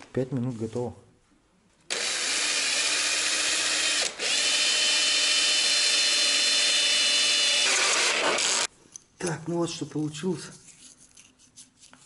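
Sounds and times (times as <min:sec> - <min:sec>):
cordless drill cutting plastic: 0:01.9 - 0:08.7.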